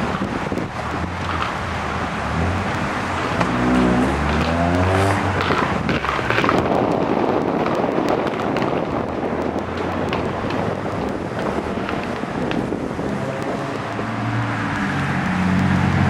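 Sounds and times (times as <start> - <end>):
low traffic rumble: 0.0 - 16.0
car accelerating past: 2.3 - 5.8, 13.1 - 16.0.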